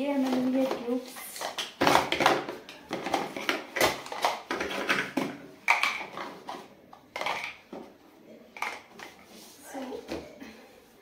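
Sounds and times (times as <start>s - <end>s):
plastic bins clacking and knocking: 0.0s - 8.0s.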